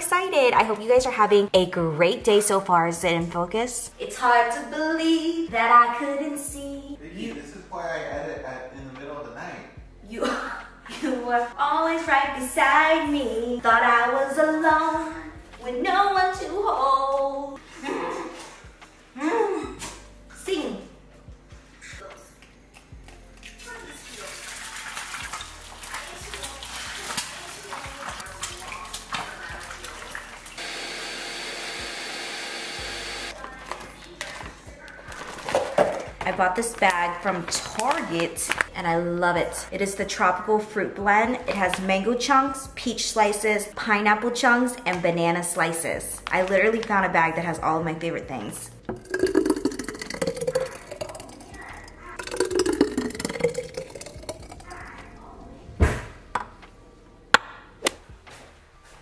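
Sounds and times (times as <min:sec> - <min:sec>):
blender whirring: 0:30.6 - 0:33.3
light knocks and kitchen clatter: 0:35.2 - 0:36.3
smoothie pouring into jar: 0:48.9 - 0:54.7.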